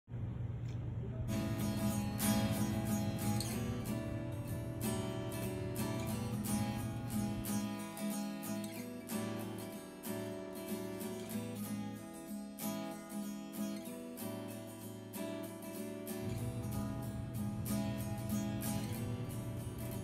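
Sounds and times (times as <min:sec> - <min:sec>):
strummed acoustic guitar: 0:01.3 - 0:20.0
low sustained bass note: 0:16.2 - 0:20.0.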